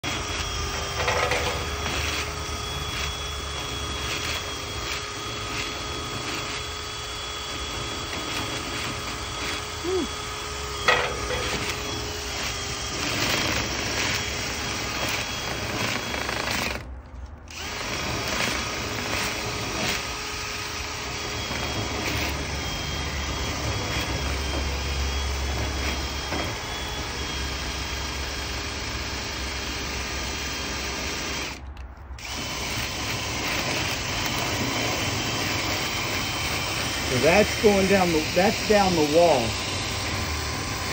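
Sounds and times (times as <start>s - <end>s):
cordless drill whirring: 0.0s - 40.9s
brush scrubbing inside duct: 33.6s - 40.9s.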